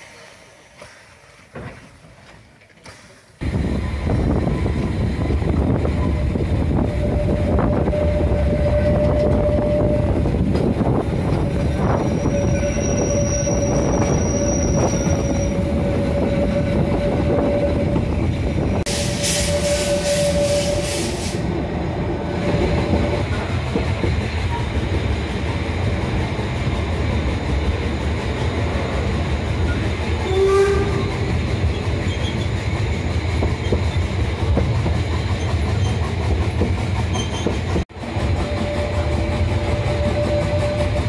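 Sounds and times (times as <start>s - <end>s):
train wheels rumbling on track: 0.0s - 41.0s
wheels squealing: 3.8s - 21.2s, 29.6s - 32.8s, 37.0s - 37.8s
loud steam hiss: 18.8s - 21.6s.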